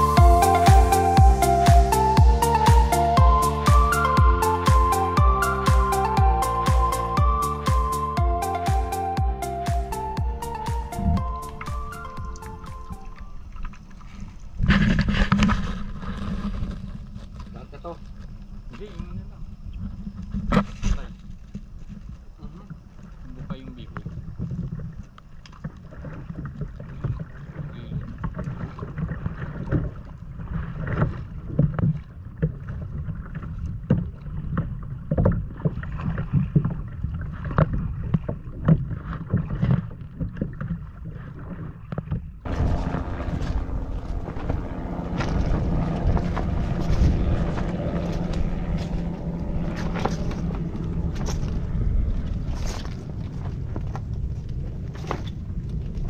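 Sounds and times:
motorboat motor drone: 0.0 - 17.4, 42.4 - 55.9
water slapping against hull: 9.7 - 56.0.

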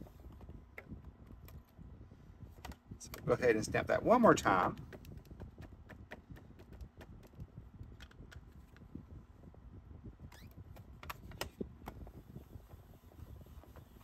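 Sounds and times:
acrylic stamp taps and clicks: 4.8 - 7.4.

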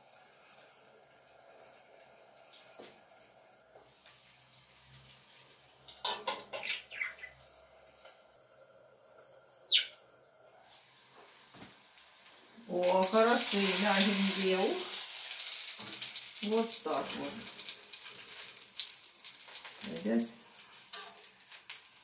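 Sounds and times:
food frying in covered pan: 0.0 - 22.0
bird chirps sliding downward: 9.7 - 10.0.

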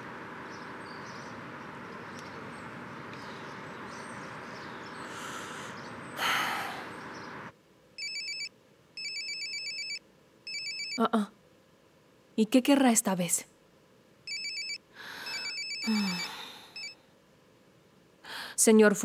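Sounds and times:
outdoor background noise: 0.0 - 19.0
mobile phone ringtone: 8.0 - 11.0, 14.3 - 17.0.

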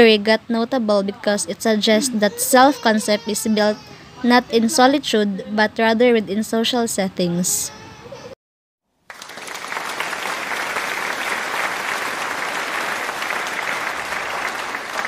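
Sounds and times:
crowd applause: 9.1 - 15.0.

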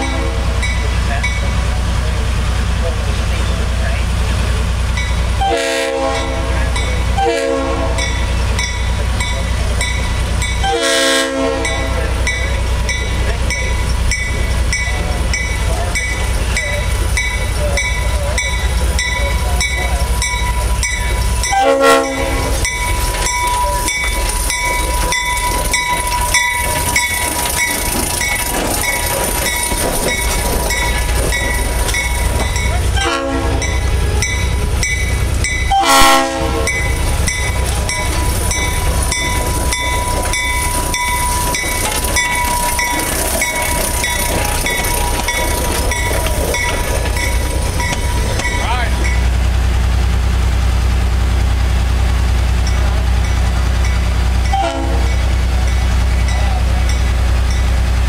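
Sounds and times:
locomotive horn blasts: 0.0 - 0.6, 5.4 - 8.2, 10.6 - 12.0, 21.4 - 22.7, 32.9 - 34.6, 35.6 - 37.0, 54.5 - 55.2
diesel locomotive running: 0.0 - 58.0
bell ringing: 11.6 - 36.0, 36.7 - 49.3.

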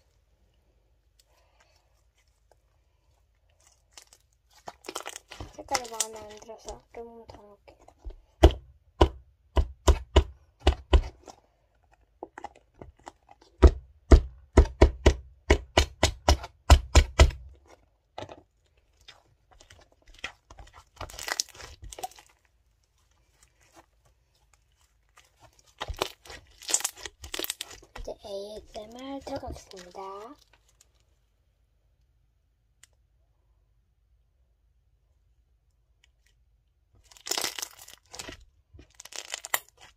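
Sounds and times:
slime crackles: 1.2 - 8.6, 17.0 - 31.1, 37.0 - 39.9.

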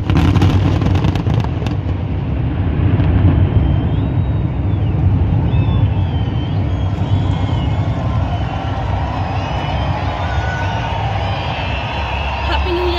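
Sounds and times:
low city rumble: 0.0 - 12.9
faint high whistling tones: 3.4 - 12.9.

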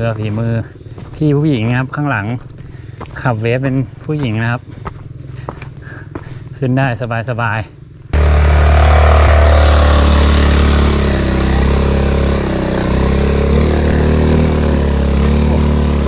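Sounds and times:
scooter engine pulling hard: 8.2 - 16.0.

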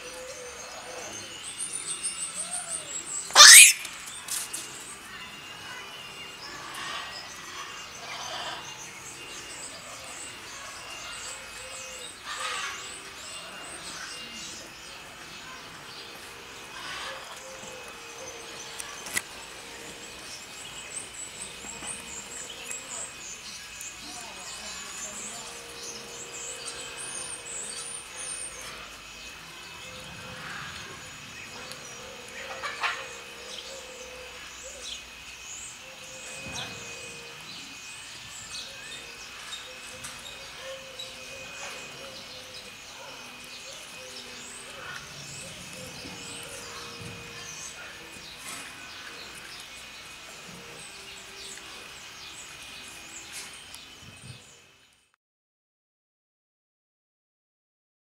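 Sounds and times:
small birds chirping: 0.0 - 55.1
harsh noisy animal calls: 3.3 - 4.0
short high animal chirps: 3.3 - 4.0.

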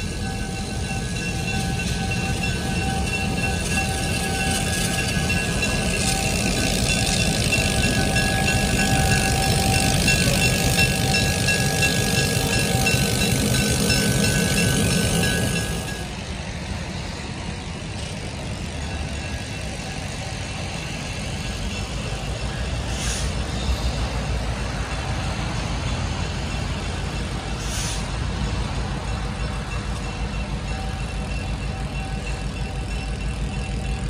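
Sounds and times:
diesel locomotive rumble: 0.0 - 34.0
brief hisses: 22.9 - 23.4, 27.6 - 28.1.

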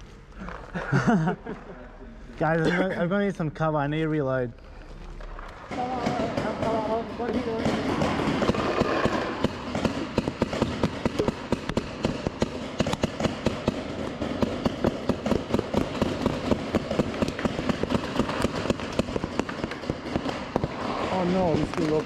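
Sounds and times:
paintball markers firing: 5.2 - 22.0
paintballs rattling into hopper: 16.4 - 22.0.

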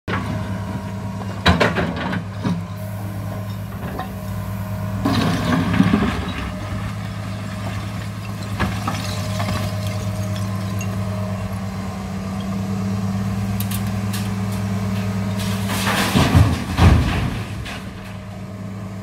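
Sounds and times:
excavator diesel engine running: 0.1 - 19.0
debris tipped into truck bed: 5.0 - 11.7, 14.1 - 18.4
bucket knocking on rubble: 7.4 - 11.4.

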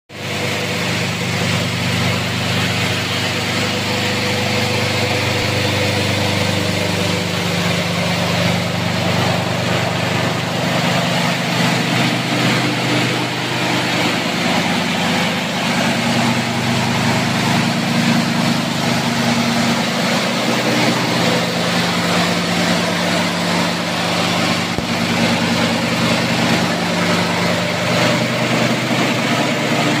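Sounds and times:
motor humming: 0.2 - 30.0.

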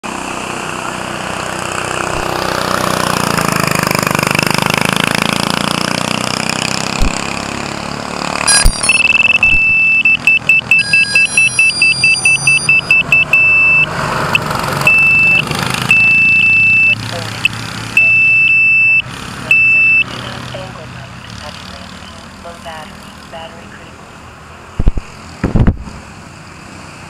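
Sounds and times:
go-kart engine passing: 0.1 - 9.3, 10.5 - 18.0
high electronic beeps: 8.4 - 20.4.

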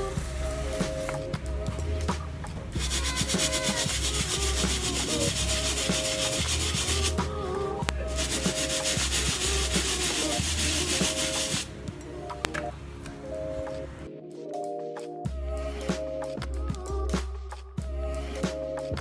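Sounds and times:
background music: 0.0 - 19.0
brush scrubbing a sneaker: 2.8 - 7.4, 8.1 - 11.7.

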